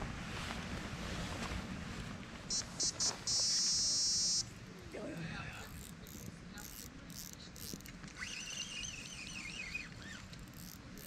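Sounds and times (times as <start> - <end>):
fishing reel clicking: 5.7 - 11.0.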